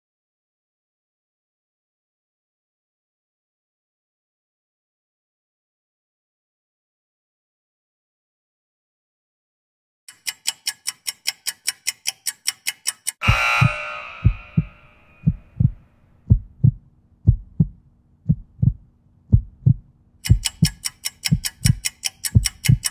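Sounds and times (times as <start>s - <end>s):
fast timer ticking: 10.1s - 22.9s
loud ringing signal: 13.2s - 15.3s
heartbeat thump: 13.2s - 21.8s, 22.4s - 22.9s.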